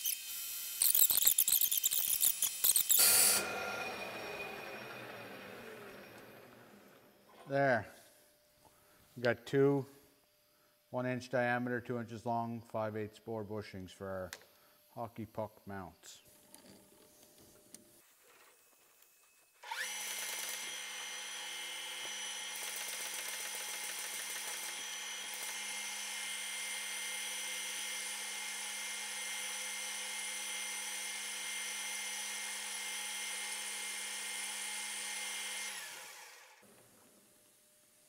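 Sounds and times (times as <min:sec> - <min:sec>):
metal lathe whining: 0:00.0 - 0:07.3
lathe spinning down: 0:02.5 - 0:07.3, 0:19.6 - 0:29.2, 0:31.0 - 0:36.6.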